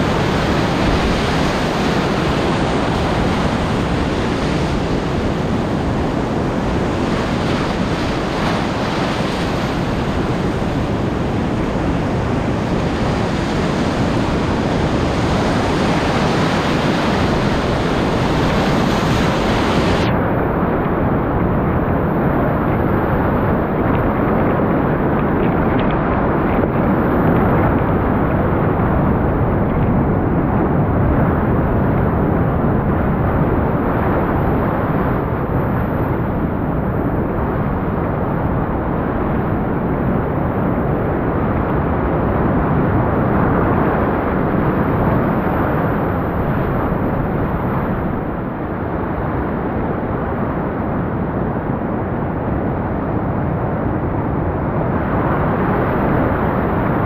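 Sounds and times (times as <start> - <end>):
rapids rushing: 0.0 - 21.2.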